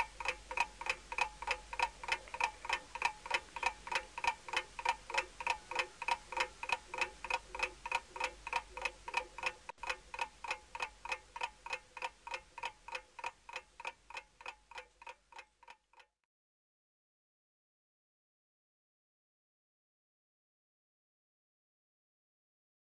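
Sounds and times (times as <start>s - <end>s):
clock ticking: 0.0s - 16.1s.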